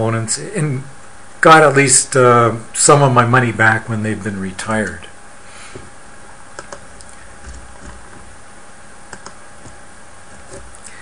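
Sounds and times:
steady low hiss: 0:00.0 - 0:11.0
computer clicks: 0:06.6 - 0:08.2, 0:09.1 - 0:09.8.

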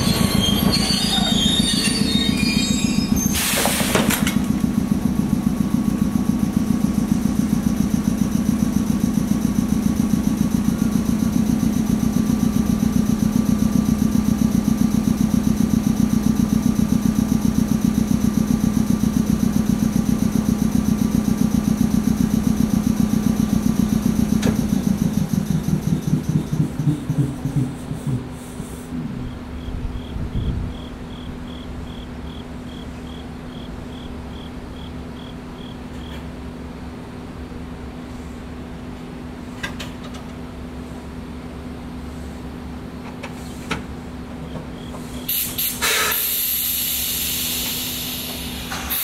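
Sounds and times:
air compressor throbbing: 0:23.2 - 0:29.3, 0:45.1 - 0:49.0.

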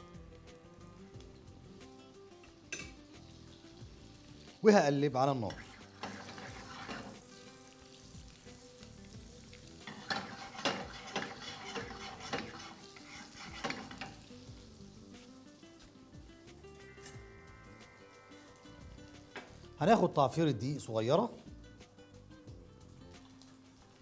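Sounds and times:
butter sizzling in frying pan: 0:00.1 - 0:19.8, 0:21.6 - 0:24.0
spoon scraping pan: 0:05.5 - 0:07.3, 0:09.8 - 0:14.4.

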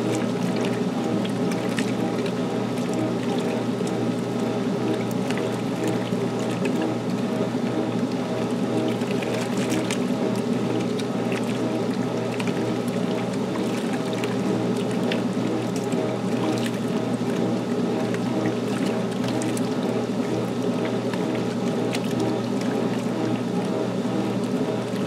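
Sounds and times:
small clicks and splashes: 0:00.0 - 0:25.0
washing machine motor hum: 0:00.0 - 0:25.0
water churning in tub: 0:00.0 - 0:25.0.

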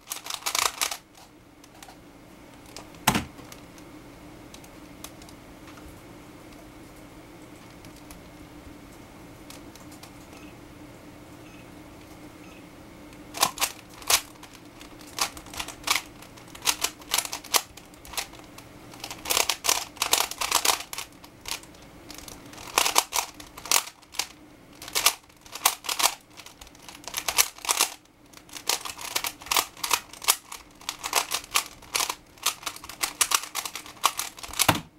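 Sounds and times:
puzzle cube clicking fast: 0:00.1 - 0:01.0, 0:13.4 - 0:34.8.

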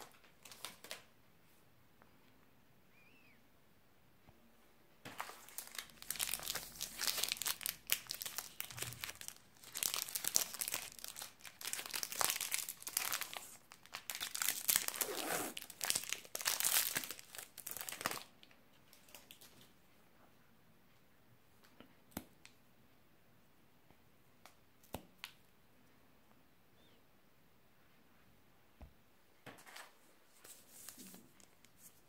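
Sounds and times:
plastic wrapper crinkling: 0:00.0 - 0:01.1, 0:05.1 - 0:19.6.

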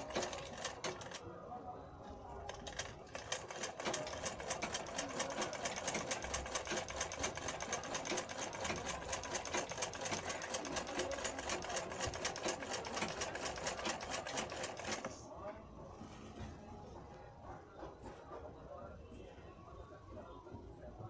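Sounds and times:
sewing machine clattering: 0:00.0 - 0:01.2, 0:02.5 - 0:15.1.

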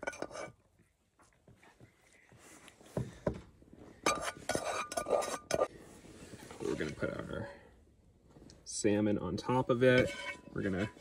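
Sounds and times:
spatula scraping a saucepan: 0:00.0 - 0:00.6, 0:04.1 - 0:05.7, 0:09.8 - 0:11.0.

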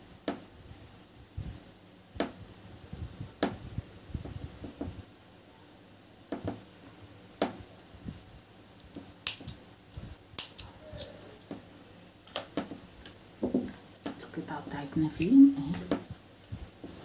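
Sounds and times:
small scissors snipping: 0:08.8 - 0:11.5.

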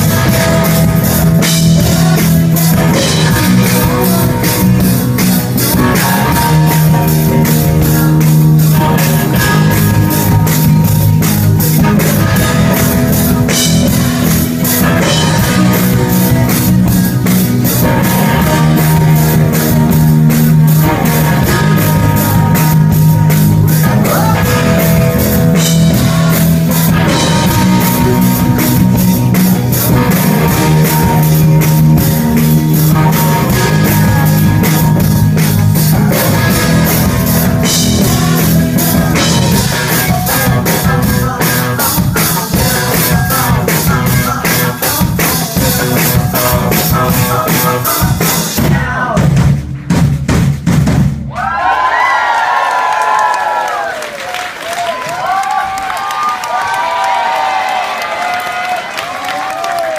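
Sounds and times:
man singing lead vocal: 0:00.0 - 0:29.0, 0:29.8 - 0:35.1, 0:35.8 - 0:49.4
rock band playing: 0:00.0 - 0:59.9.

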